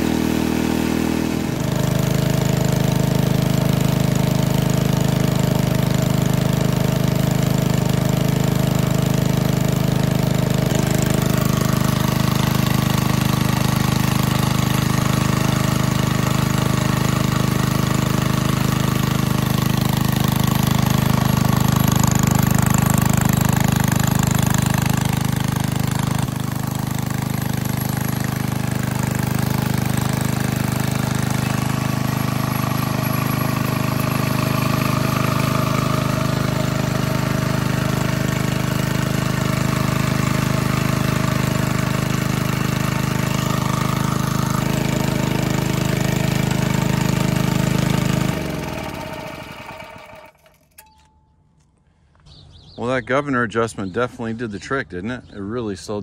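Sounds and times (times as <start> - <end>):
small engine running steadily: 0.0 - 51.2.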